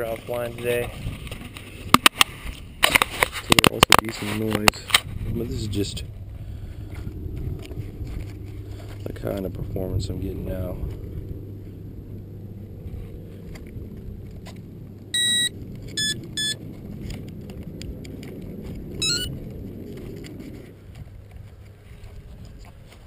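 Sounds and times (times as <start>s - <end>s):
low rumble: 5.0s - 23.0s
rising run of tones: 14.8s - 16.8s, 18.9s - 19.8s
electronic beeps: 15.2s - 16.6s, 19.0s - 19.3s.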